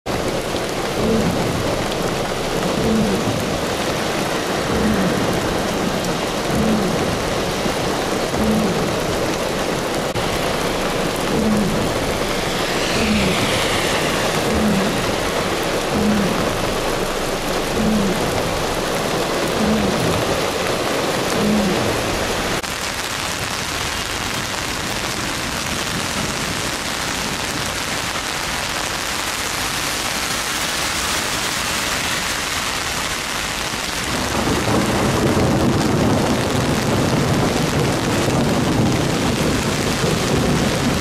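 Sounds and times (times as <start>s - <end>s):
heavy rain falling: 0.0s - 41.0s
falling whoosh: 10.2s - 18.6s
faint low pulse: 10.6s - 18.5s.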